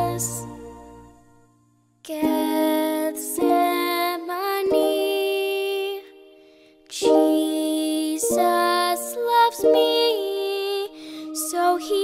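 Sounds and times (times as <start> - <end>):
wordless singing: 0.0 - 1.2
slow soft music: 0.0 - 12.0.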